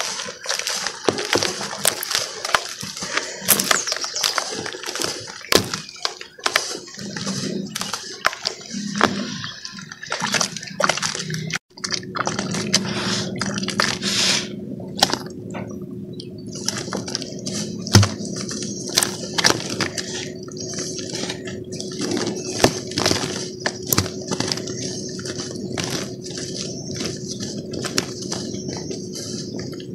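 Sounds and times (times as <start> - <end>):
dry cement crackling: 0.0 - 15.8, 16.4 - 29.9
lumps splashing into water: 9.0 - 14.0.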